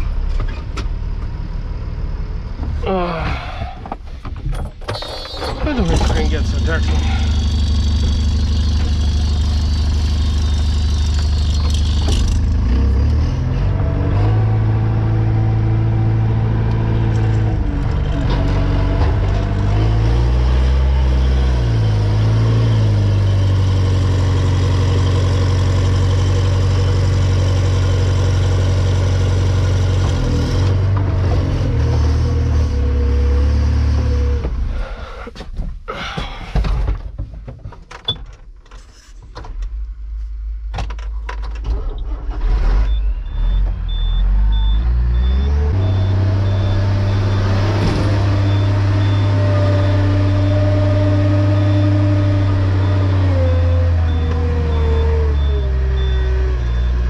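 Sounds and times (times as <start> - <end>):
farm machinery engine running: 5.0 - 13.2, 45.7 - 53.2.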